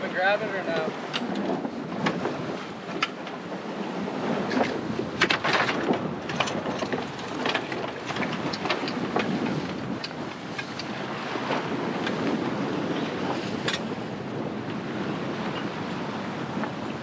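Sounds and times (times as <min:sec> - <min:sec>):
water rushing along hull: 0:00.0 - 0:17.0
wind buffeting microphone: 0:00.0 - 0:17.0
crackles and knocks: 0:01.1 - 0:03.4, 0:04.5 - 0:12.4.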